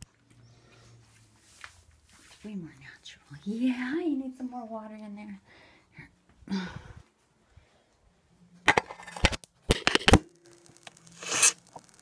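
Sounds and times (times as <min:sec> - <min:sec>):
brief hiss: 0:11.1 - 0:11.7.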